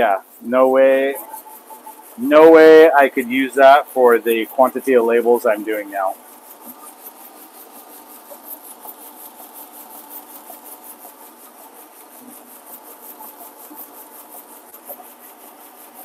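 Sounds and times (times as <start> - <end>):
machine fast ticking: 0.0 - 16.0
machine mechanical hum: 0.0 - 16.0.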